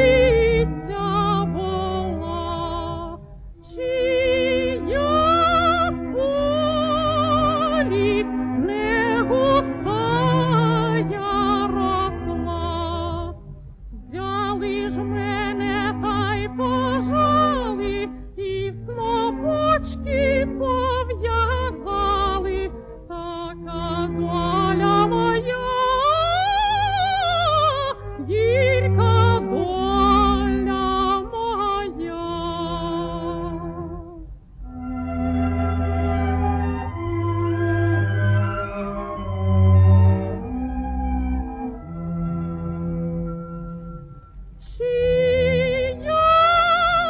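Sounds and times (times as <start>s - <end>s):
woman singing operatically: 0.0s - 13.4s, 14.0s - 34.2s, 44.6s - 47.0s
instrumental accompaniment: 0.0s - 47.0s.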